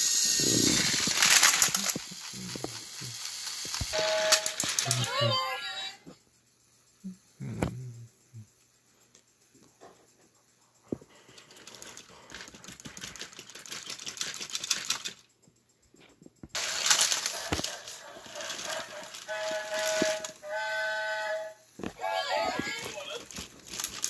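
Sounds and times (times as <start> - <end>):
rough mechanical noise: 0.0 - 5.2
toy train motors clicking: 0.0 - 24.0.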